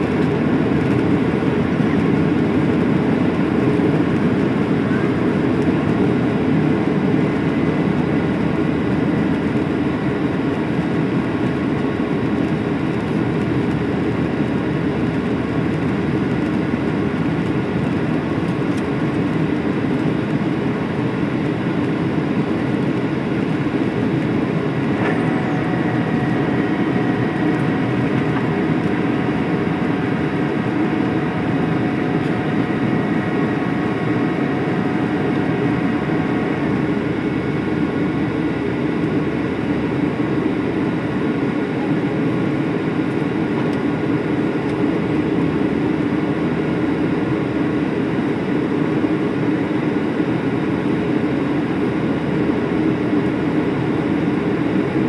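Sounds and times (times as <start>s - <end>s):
jet engine drone: 0.0s - 55.0s
faint whining tones: 23.4s - 39.7s
rushing airflow: 24.6s - 38.2s.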